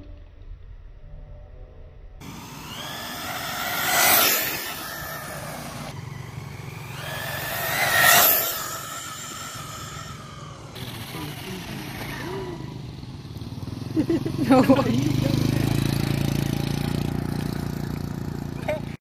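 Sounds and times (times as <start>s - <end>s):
rc truck motor whining: 2.2s - 13.8s
tyres hissing on asphalt: 2.2s - 16.3s.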